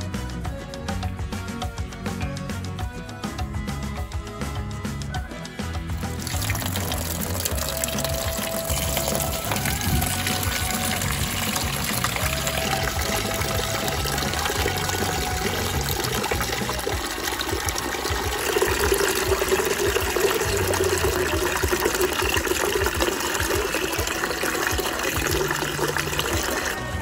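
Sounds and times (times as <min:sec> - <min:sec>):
tap water pouring into a tub: 0:05.9 - 0:27.0.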